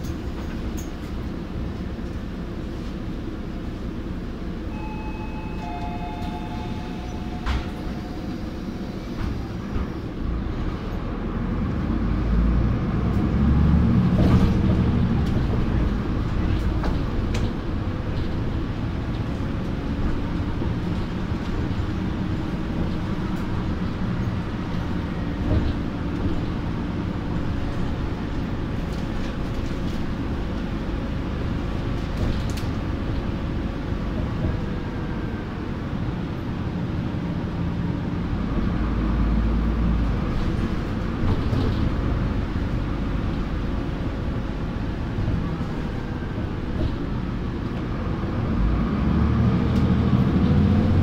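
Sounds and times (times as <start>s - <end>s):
bus engine running: 0.0s - 51.0s
whining tones: 4.7s - 9.8s.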